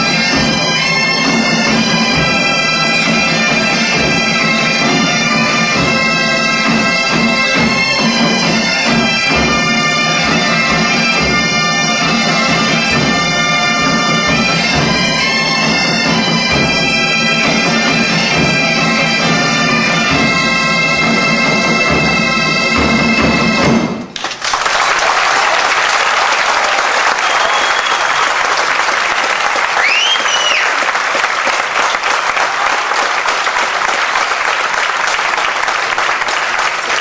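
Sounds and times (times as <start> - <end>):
bagpipe tune over drone: 0.0 - 23.6
crowd applauding: 24.1 - 37.0
sharp whistles: 27.2 - 28.4, 29.8 - 30.8.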